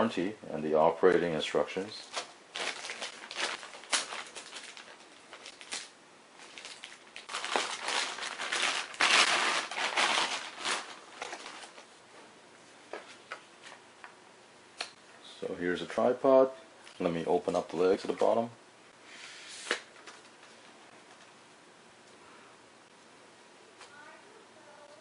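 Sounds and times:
plastic bag crinkling: 2.0 - 11.9.

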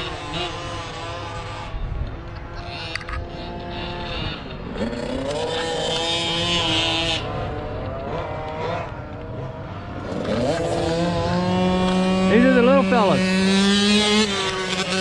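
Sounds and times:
racing motorcycle engines: 0.0 - 15.0.

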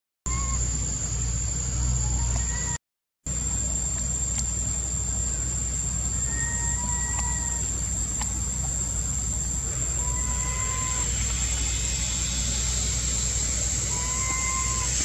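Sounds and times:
faint drawn-out calls: 0.3 - 0.7, 6.1 - 8.7, 9.4 - 15.0
high whine: 0.3 - 15.0
low rumble and hiss: 0.3 - 15.0.

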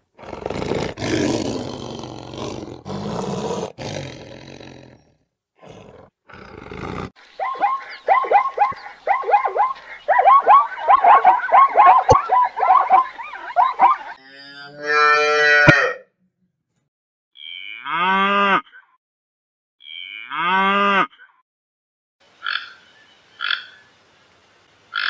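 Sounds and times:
lion roaring: 0.2 - 7.2
zebra barking call: 7.3 - 14.2.

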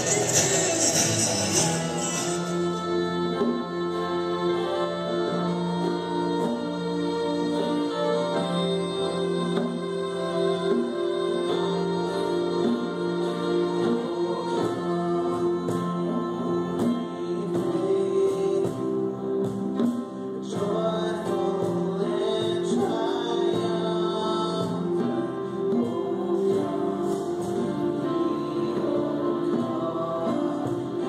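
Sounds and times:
cajon and hand drum: 0.0 - 31.0
clarinet melody: 0.0 - 31.0
guitars: 0.0 - 31.0
keyboard: 0.0 - 31.0.

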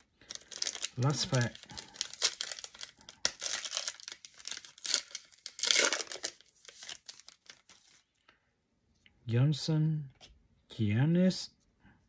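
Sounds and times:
foil wrapper tearing and crinkling: 0.0 - 8.0.

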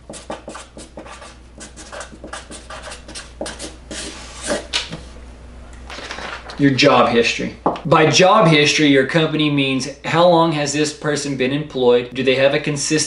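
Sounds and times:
pen writing on paper: 0.1 - 4.7.

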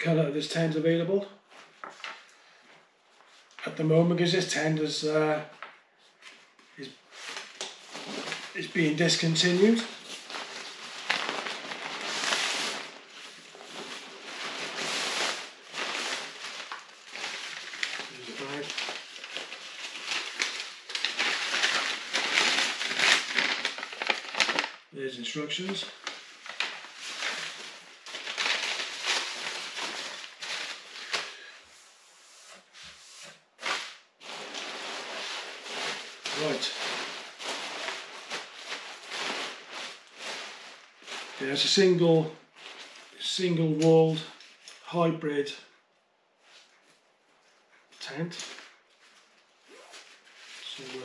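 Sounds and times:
tent fabric rustling and crinkling: 6.2 - 32.0, 33.6 - 43.2, 46.4 - 51.0.

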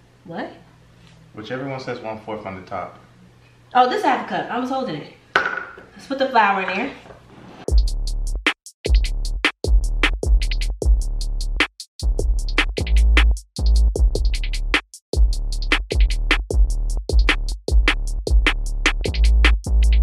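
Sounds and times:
deep bass line: 7.7 - 20.0
electronic hip hop beat: 7.7 - 20.0.

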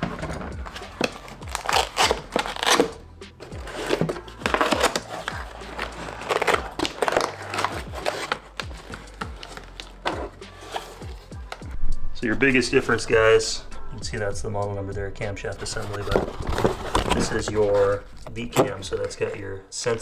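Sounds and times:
cardboard scraping: 0.0 - 11.3, 15.6 - 19.4
cardboard box being opened: 3.5 - 11.3, 15.7 - 17.8
plastic wrap crinkling: 3.7 - 10.9.

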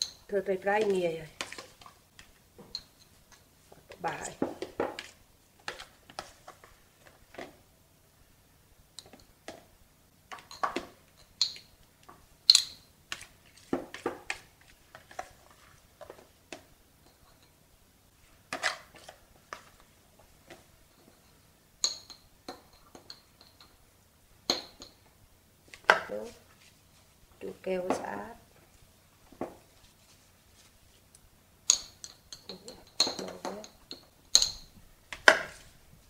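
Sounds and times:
spoon clinking on glass jar: 10.4 - 11.7, 21.8 - 23.7, 31.7 - 34.8.

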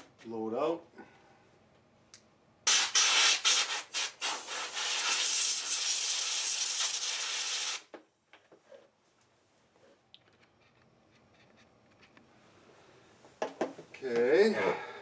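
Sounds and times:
compressed air blasts: 2.6 - 7.9.

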